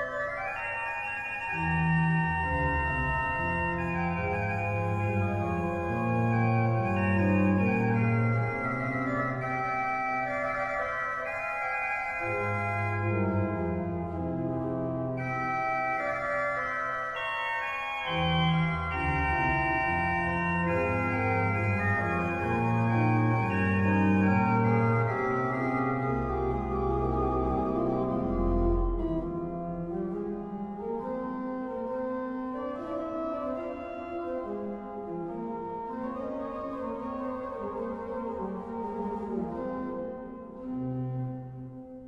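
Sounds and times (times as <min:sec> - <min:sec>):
organ playing slow chords: 0:00.0 - 0:42.0.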